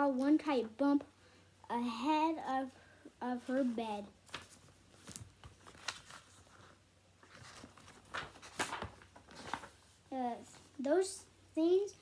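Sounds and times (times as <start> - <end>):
paper pages rustling: 3.4 - 10.7.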